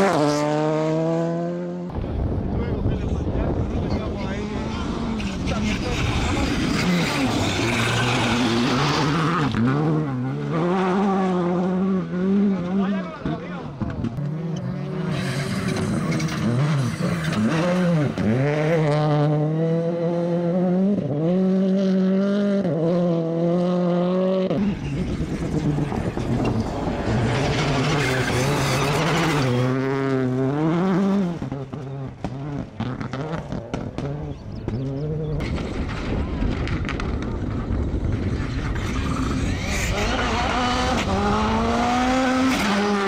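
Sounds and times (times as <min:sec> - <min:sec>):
rally car engines at full throttle: 0:00.0 - 0:43.0
rough rumbling noise: 0:01.9 - 0:10.4, 0:24.4 - 0:42.5.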